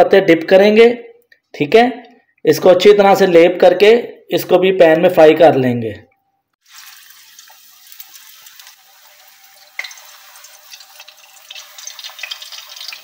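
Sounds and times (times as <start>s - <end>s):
leaves frying in hot oil: 6.6s - 13.0s.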